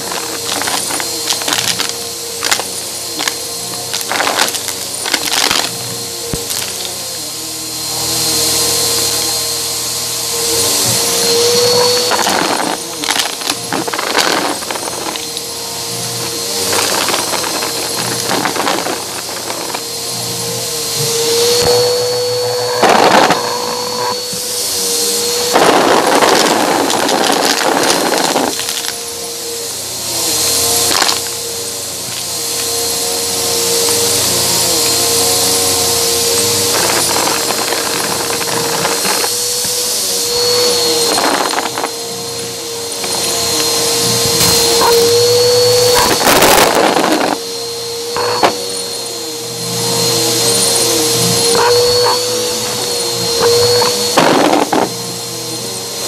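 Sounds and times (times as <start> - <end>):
vacuum cleaner motor hum: 0.0 - 56.0
crunchy rattling of objects sucked up: 22.8 - 29.0.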